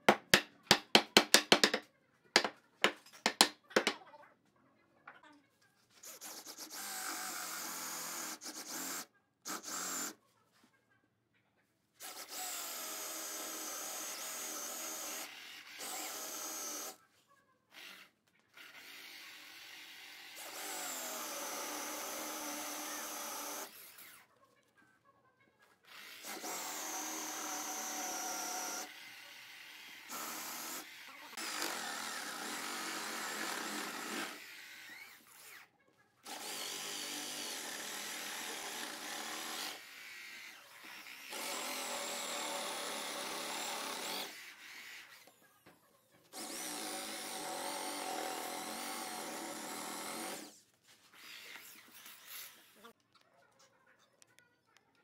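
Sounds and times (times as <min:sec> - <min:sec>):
cordless drill boring into wood: 0:06.0 - 0:10.2, 0:12.0 - 0:17.0, 0:17.7 - 0:24.2, 0:25.9 - 0:45.4, 0:46.3 - 0:50.6.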